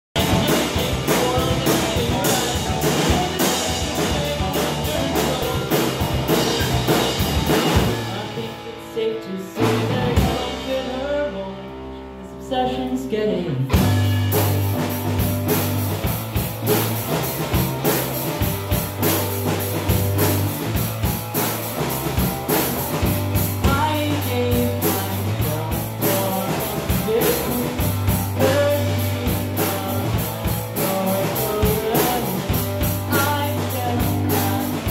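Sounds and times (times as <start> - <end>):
drum kit: 0.1 - 11.7, 13.4 - 34.9
electric guitars: 0.2 - 34.9.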